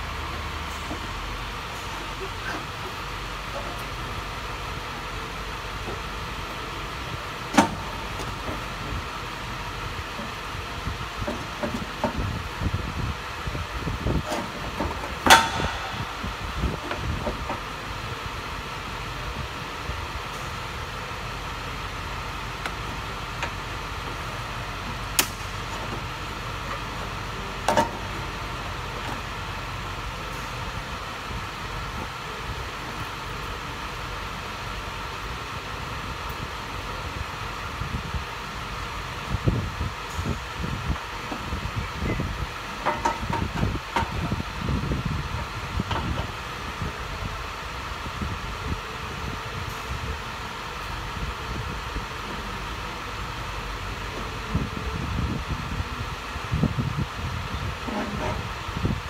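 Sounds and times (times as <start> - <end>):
steady background hum: 0.0 - 59.0
metal part knocking and clanking: 14.2 - 17.6, 42.8 - 44.2.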